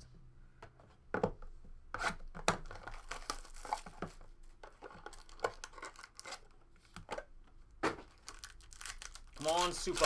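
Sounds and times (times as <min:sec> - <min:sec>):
foil pack tearing and crinkling: 0:08.2 - 0:10.0.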